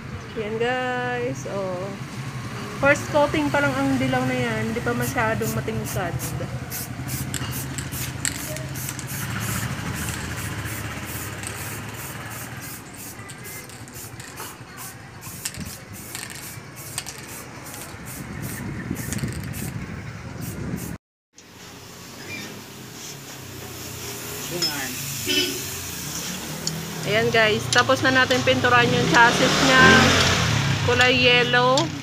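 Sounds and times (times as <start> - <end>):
spray paint can hissing: 4.8 - 19.8, 20.4 - 21.0, 22.6 - 30.0.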